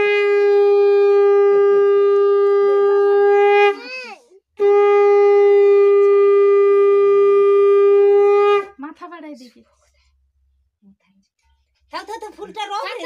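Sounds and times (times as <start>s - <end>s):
conch shell blasts: 0.0s - 3.9s, 4.6s - 8.8s.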